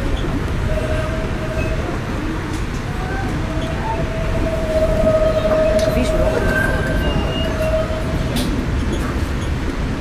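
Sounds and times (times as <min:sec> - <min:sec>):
train wheels rumbling on track: 0:00.0 - 0:10.0
steady whining tone: 0:03.2 - 0:08.6.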